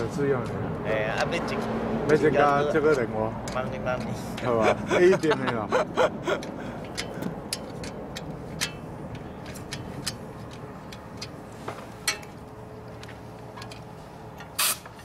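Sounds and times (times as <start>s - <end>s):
metallic clicks of wrench and bolts: 2.4s - 4.5s, 6.4s - 11.4s, 12.0s - 15.0s
short loud hiss: 14.6s - 14.8s.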